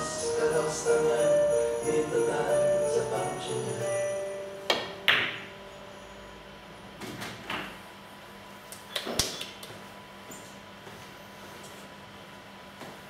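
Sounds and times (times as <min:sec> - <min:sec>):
background music: 0:00.0 - 0:06.2.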